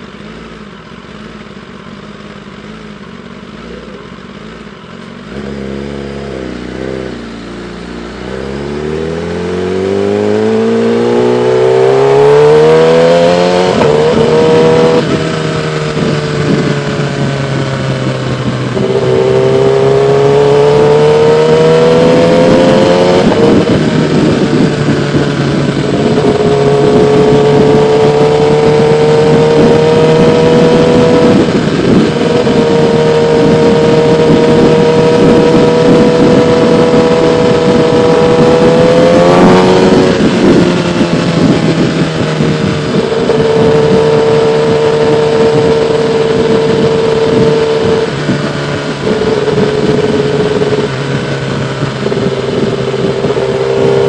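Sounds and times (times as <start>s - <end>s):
motorcycle engine revving: 0.0s - 54.0s
wind noise: 5.3s - 54.0s.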